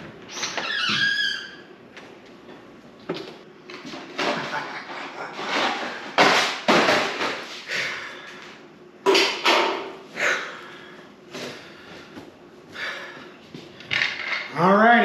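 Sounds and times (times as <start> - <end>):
sudden clatters and rustles: 3.2 - 7.6.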